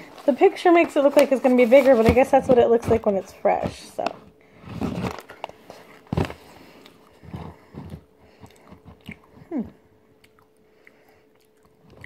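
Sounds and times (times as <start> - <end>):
person chewing: 6.8 - 12.0
person humming: 9.3 - 9.9.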